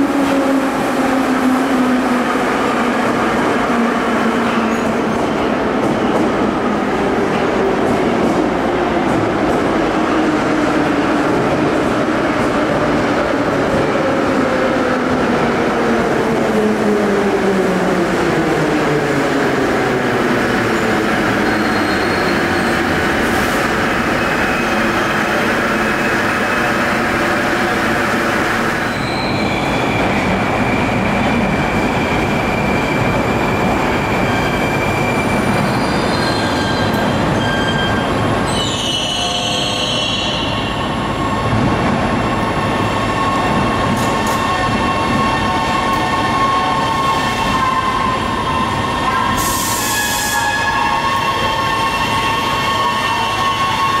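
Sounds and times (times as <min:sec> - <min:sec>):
high wheel squeal: 0:21.4 - 0:22.9, 0:28.8 - 0:41.0.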